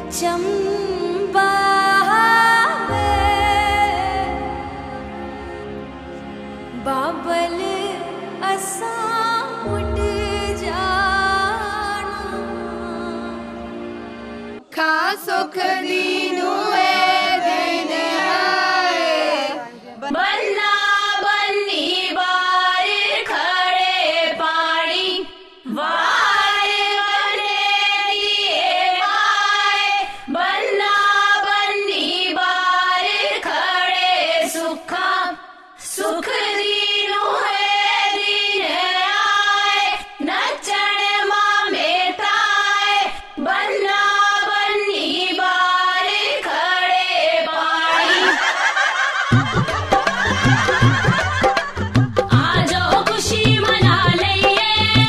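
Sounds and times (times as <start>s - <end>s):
held chord accompaniment: 0.0s - 14.7s.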